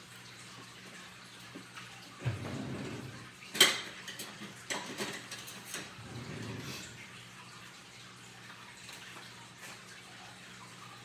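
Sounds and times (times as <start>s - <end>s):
kitchen things clicking and knocking: 3.5s - 6.4s.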